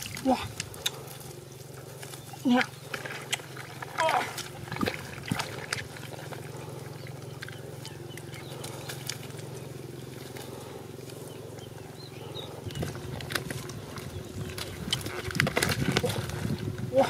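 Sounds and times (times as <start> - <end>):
hands digging in wet mud: 0.0 - 11.7, 12.3 - 17.0
steady low hum: 0.0 - 17.0.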